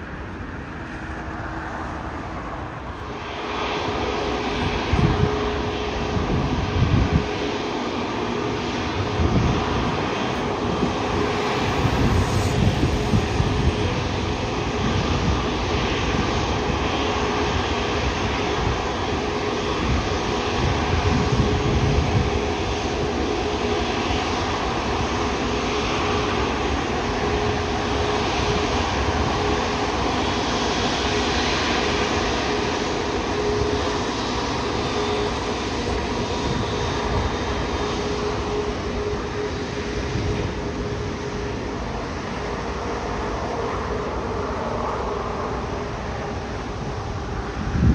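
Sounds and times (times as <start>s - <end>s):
jet engines running with whine: 0.0s - 47.9s.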